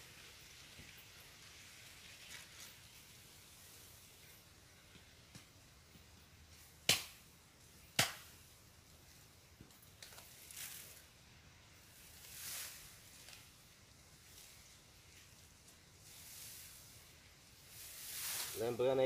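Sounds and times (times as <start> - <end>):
bamboo leaves rustling: 0.0 - 19.0
light knocks of bamboo: 6.8 - 7.2, 7.9 - 8.4
machete chopping bamboo: 6.8 - 7.2, 8.0 - 8.3.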